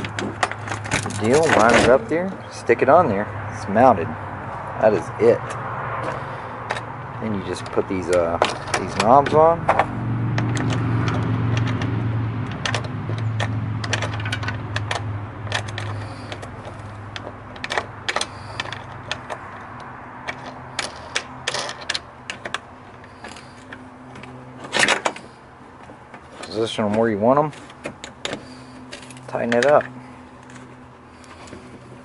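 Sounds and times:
plastic knobs clicking on bolts: 7.5 - 25.2, 25.8 - 30.6.

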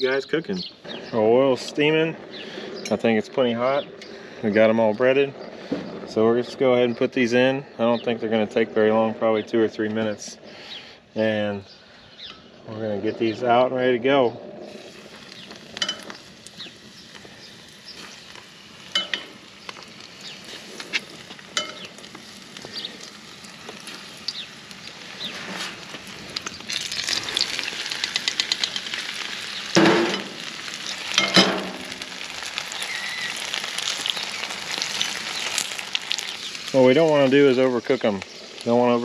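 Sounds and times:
food sizzling in hot oil: 14.6 - 39.0.

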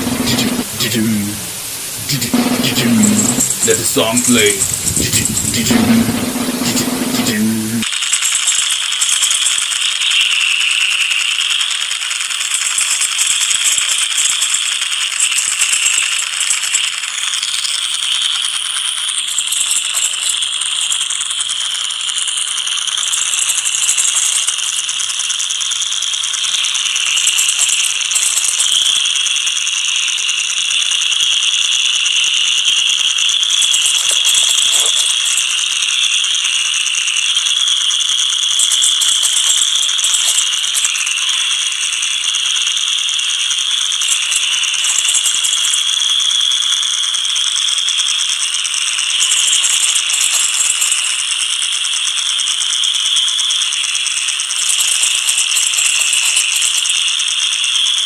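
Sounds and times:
harsh noise music: 0.0 - 7.9.

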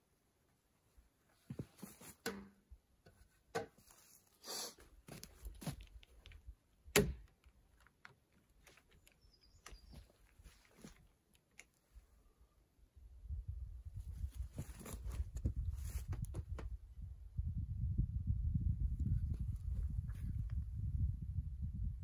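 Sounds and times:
small clicks: 7.2 - 12.0.

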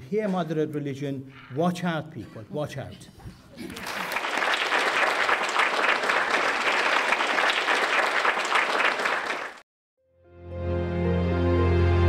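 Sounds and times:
audience applauding: 3.6 - 9.6
music with long held notes: 10.2 - 12.0.

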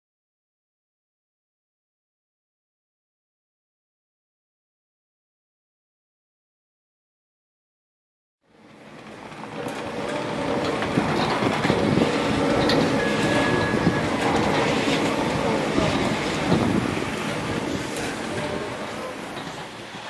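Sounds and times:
chairlift mechanical rumble: 8.5 - 20.0
chairs rattling and clicking: 9.0 - 18.7.

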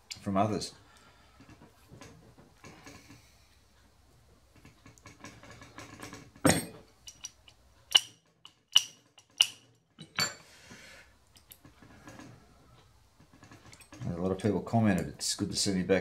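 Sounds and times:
metal parts clinking: 4.9 - 10.4
metal parts clattering: 5.0 - 10.4.

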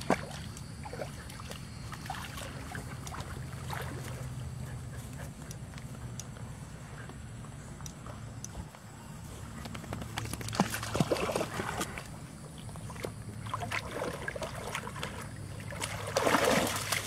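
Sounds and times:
dogs splashing in water: 0.0 - 5.4, 9.8 - 17.0.

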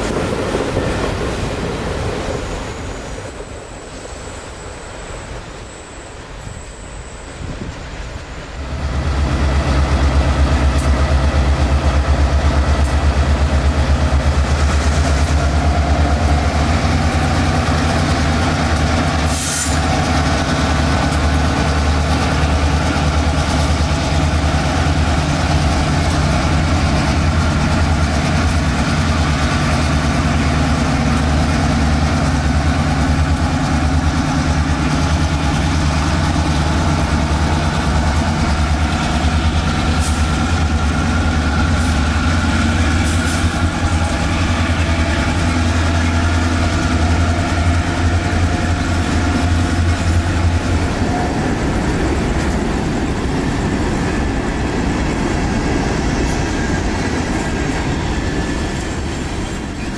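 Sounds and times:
diesel locomotive engine droning: 0.0 - 59.9.

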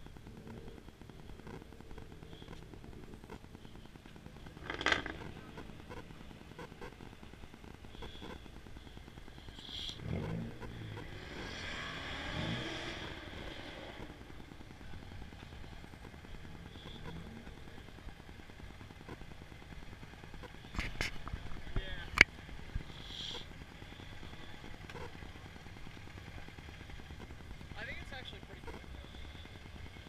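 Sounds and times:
low background rumble: 0.0 - 30.0
car engine driving past: 9.7 - 14.4.

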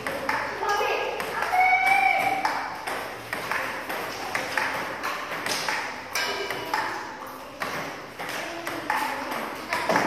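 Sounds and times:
ball bouncing on table: 0.0 - 7.0, 7.6 - 10.0
bat hitting table tennis ball: 1.2 - 6.9.

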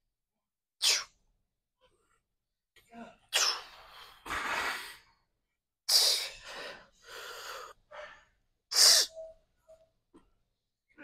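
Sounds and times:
person breathing hard: 6.0 - 9.1.

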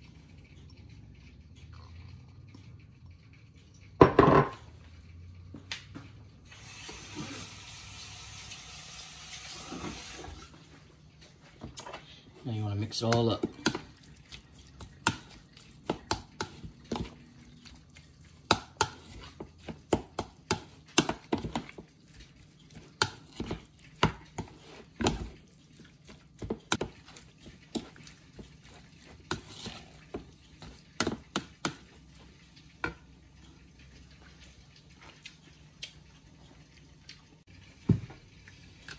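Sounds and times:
metal spoon stirring in bowl: 12.5 - 32.0.

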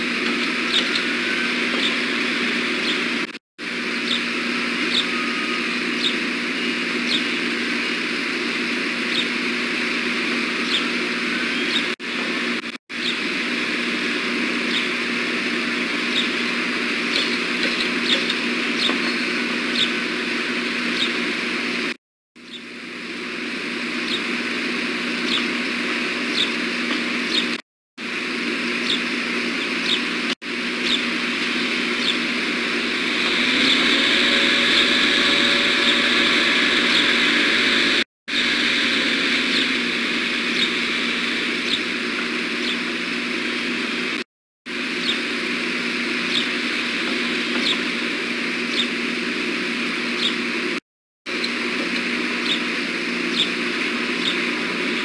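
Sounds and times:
low hum: 0.0 - 55.0
high bird chirps: 0.4 - 3.1, 4.9 - 7.6, 14.6 - 15.0, 16.1 - 16.5, 30.8 - 32.4, 40.5 - 40.8, 41.6 - 41.9, 48.7 - 49.0, 53.3 - 53.5, 54.2 - 54.5.

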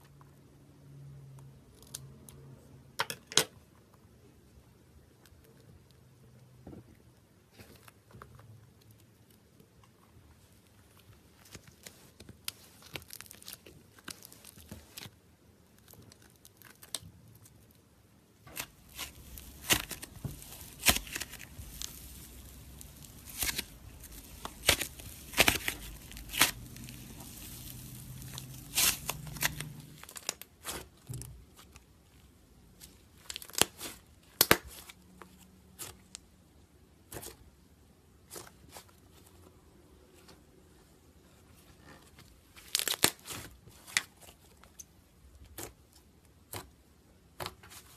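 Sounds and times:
slime tearing: 12.4 - 15.1, 18.5 - 30.9, 42.6 - 44.1
slime popping and crackling: 18.4 - 30.9.

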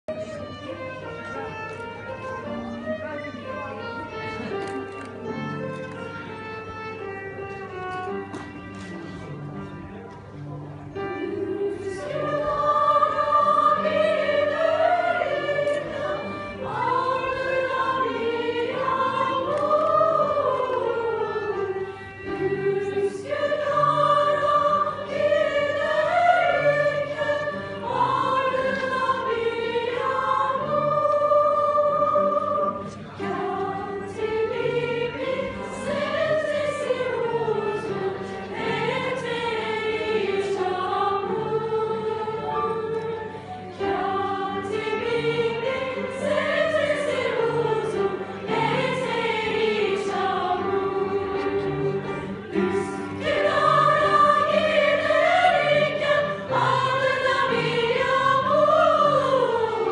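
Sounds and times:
choir singing: 10.9 - 59.9.

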